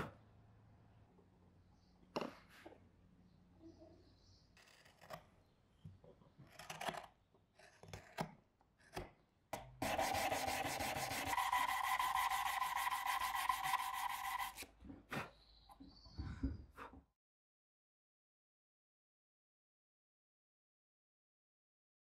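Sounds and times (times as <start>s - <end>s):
knife scraping wood: 4.6s - 5.4s, 6.4s - 9.2s, 9.8s - 15.3s
electric sander whine: 9.8s - 14.5s.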